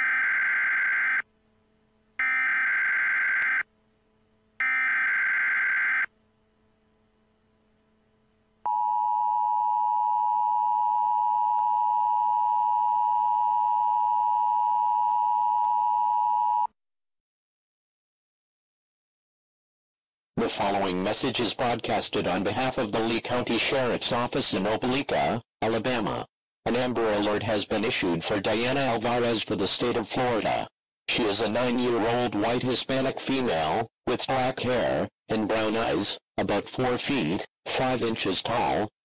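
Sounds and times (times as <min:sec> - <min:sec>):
two-tone alarm: 0:00.0 - 0:01.3, 0:02.2 - 0:03.7, 0:04.6 - 0:06.1.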